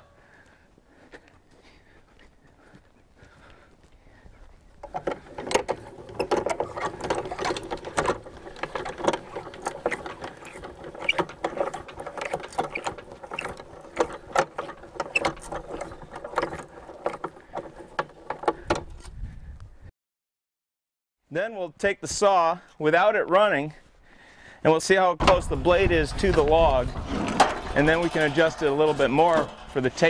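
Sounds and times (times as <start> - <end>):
winch clicking and rattling: 4.8 - 19.2.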